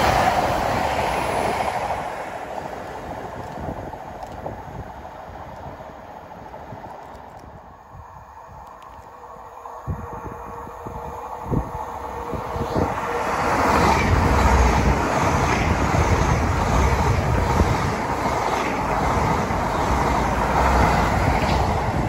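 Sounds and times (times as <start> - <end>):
wheels rushing on rail: 0.0 - 22.0.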